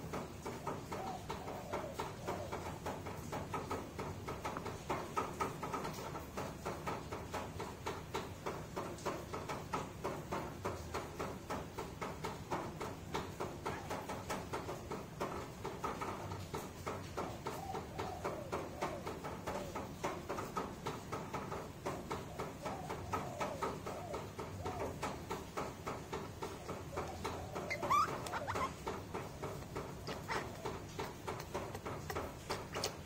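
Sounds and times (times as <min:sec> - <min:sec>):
light taps: 0:00.1 - 0:33.0
baby monkey squeaking: 0:27.0 - 0:33.0.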